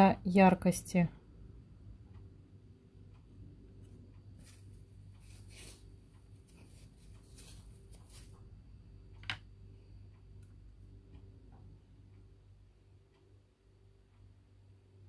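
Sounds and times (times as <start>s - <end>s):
low steady hum: 0.0s - 15.0s
paintbrush mixing paint: 4.4s - 8.5s.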